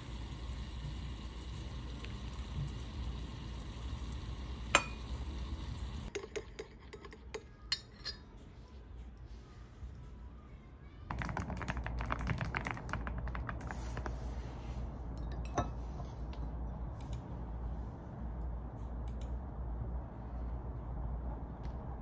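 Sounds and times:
fast typing on keyboard: 11.1s - 14.1s.

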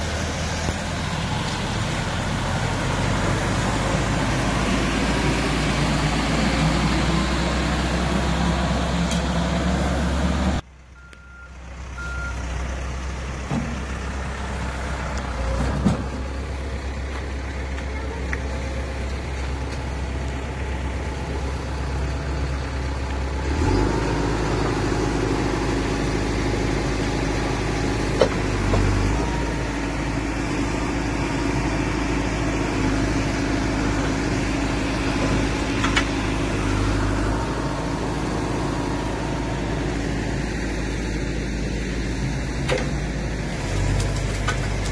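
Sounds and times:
diesel engine running: 0.0s - 44.9s
short beeps: 11.0s - 12.4s.

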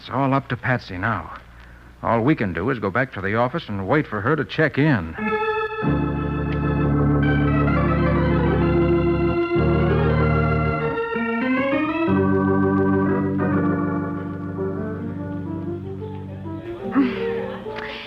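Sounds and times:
sustained organ chords: 5.2s - 17.9s.

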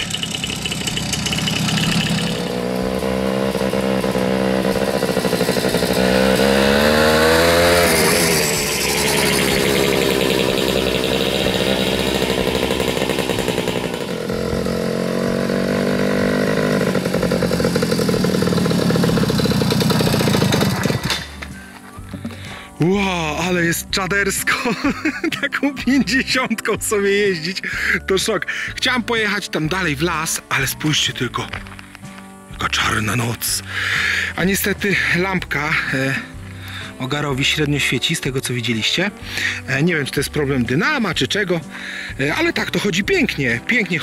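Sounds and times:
moped two-stroke engine running: 0.0s - 22.6s.

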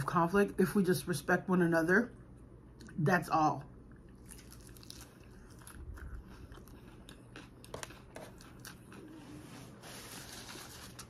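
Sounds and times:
person chewing salad: 3.8s - 11.0s.

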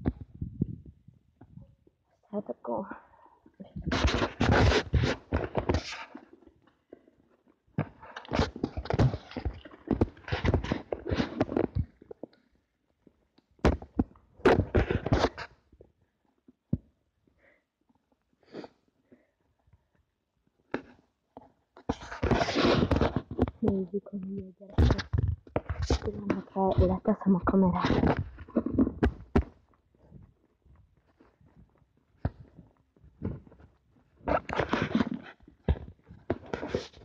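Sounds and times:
phone microphone rustling and buffeting: 0.0s - 1.9s, 3.6s - 6.2s, 21.8s - 37.0s.

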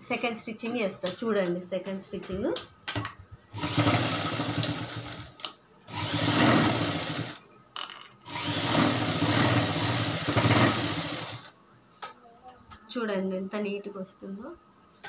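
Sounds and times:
sewing machine stitching: 3.6s - 7.4s, 8.3s - 11.5s.

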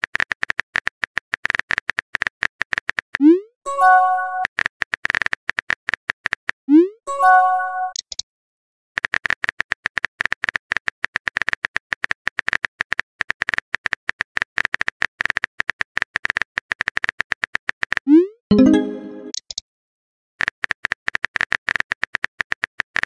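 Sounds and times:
message sent chime: 3.7s - 4.4s, 7.1s - 8.0s, 18.5s - 19.4s.

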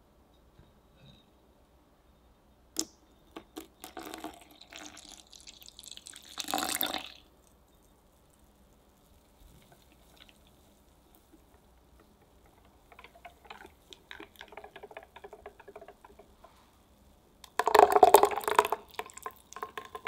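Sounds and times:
milk pouring into batter: 3.5s - 16.6s, 17.4s - 20.0s
faint whisking: 7.0s - 17.2s.

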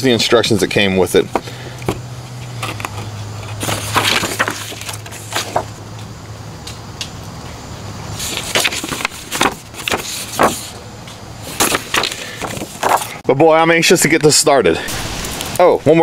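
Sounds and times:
paper pages rustling: 1.3s - 5.8s, 8.2s - 13.2s.

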